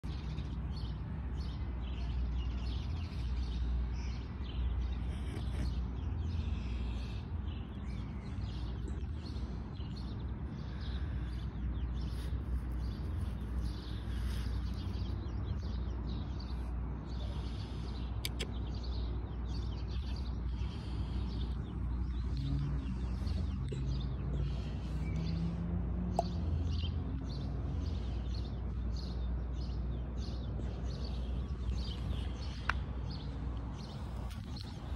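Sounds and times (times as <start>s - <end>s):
low outdoor rumble: 0.0s - 34.9s
small birds chirping: 0.0s - 34.9s.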